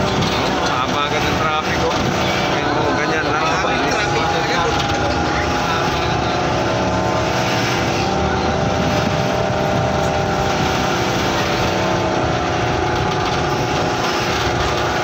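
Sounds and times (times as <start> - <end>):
bus engine drone: 0.0 - 15.0.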